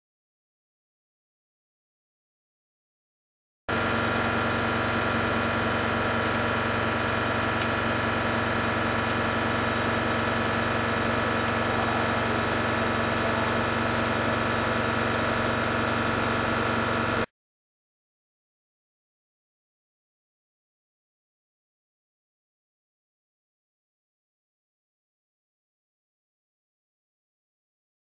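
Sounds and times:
machine cutting metal with whine: 0:03.7 - 0:17.3.

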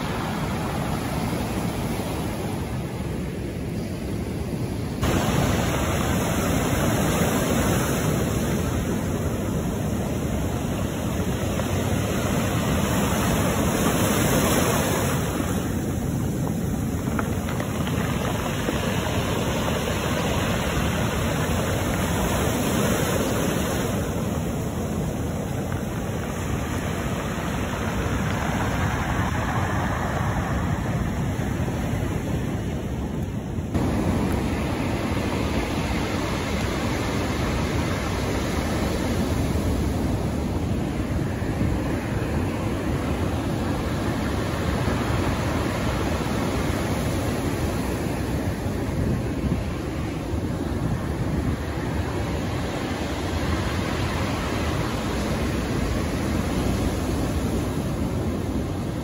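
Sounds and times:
wind buffeting the microphone: 0:00.0 - 0:59.0
surf breaking on pebble beach: 0:05.0 - 0:31.9.

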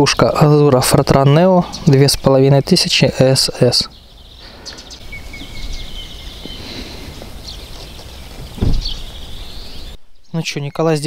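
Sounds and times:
small birds chirping: 0:00.0 - 0:11.0
low wind rumble on microphone: 0:03.9 - 0:10.2
short low thump: 0:08.4 - 0:09.1.

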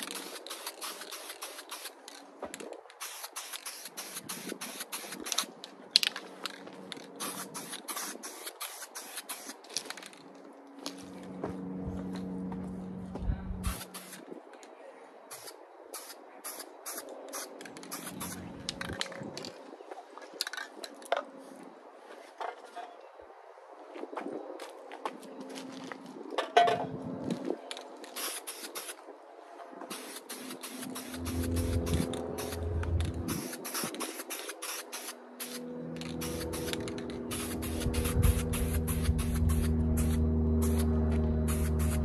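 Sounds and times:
aerosol spray can hissing: 0:00.0 - 0:02.0, 0:03.0 - 0:05.5, 0:07.2 - 0:09.6, 0:13.6 - 0:14.2, 0:15.3 - 0:18.4, 0:28.2 - 0:29.0, 0:29.9 - 0:40.9, 0:41.5 - 0:42.0
low hum: 0:10.6 - 0:13.9, 0:30.8 - 0:33.6, 0:35.2 - 0:42.0.

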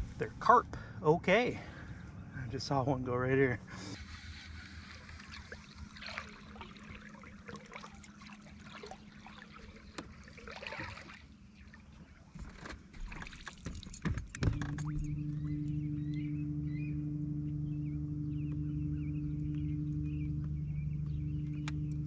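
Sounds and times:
water lapping on a lake: 0:03.6 - 0:16.3
fish splashing: 0:04.0 - 0:13.9
steady low hum: 0:14.3 - 0:22.0.

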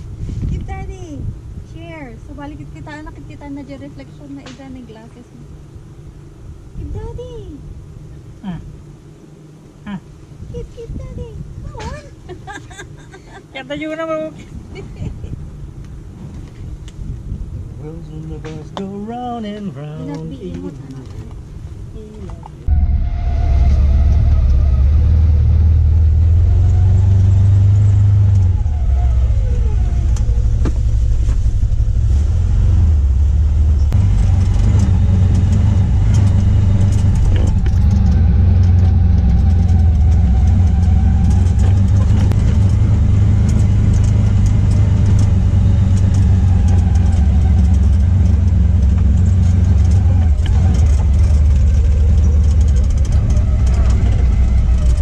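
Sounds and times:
off-road vehicle engine running: 0:00.0 - 0:55.0
clicks and rattles from bumps: 0:34.0 - 0:55.0.

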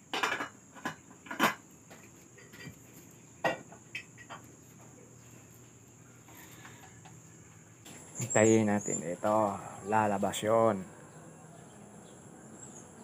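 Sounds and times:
pots and dishes clinking: 0:00.1 - 0:01.6, 0:03.4 - 0:04.5.

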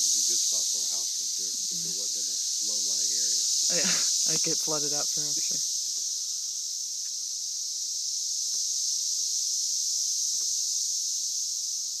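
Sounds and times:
cicadas chorus: 0:00.0 - 0:12.0.

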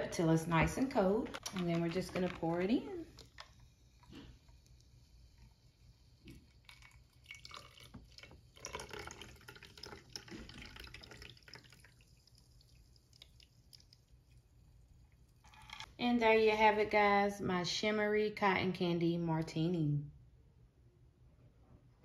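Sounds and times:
cocktail pouring into a glass: 0:06.2 - 0:14.6, 0:15.2 - 0:15.9.

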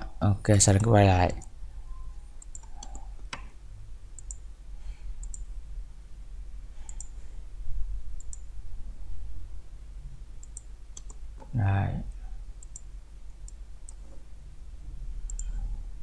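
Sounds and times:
low steady hum: 0:00.0 - 0:16.0
computer mouse clicking: 0:02.4 - 0:03.5, 0:04.2 - 0:04.4, 0:05.2 - 0:05.5, 0:06.9 - 0:07.2, 0:08.2 - 0:08.5, 0:10.4 - 0:11.5, 0:12.6 - 0:14.2, 0:15.2 - 0:15.6.

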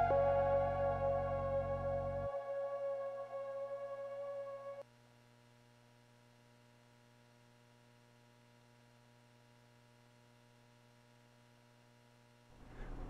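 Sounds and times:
ambient synthesizer music: 0:00.0 - 0:04.8
faint low hum: 0:03.2 - 0:13.0.

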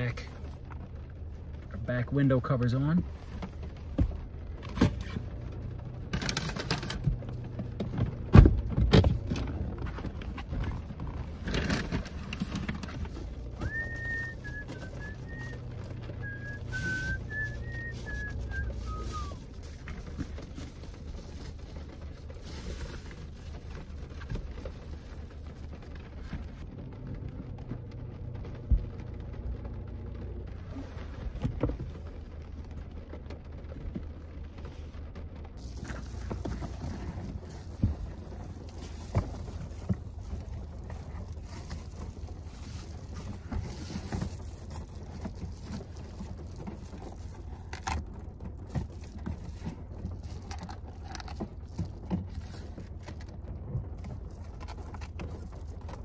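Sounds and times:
idling car engine hum: 0:00.0 - 0:56.0
knocks and thumps on a car: 0:07.1 - 0:11.1
person whistling: 0:13.6 - 0:15.6, 0:16.2 - 0:19.4.

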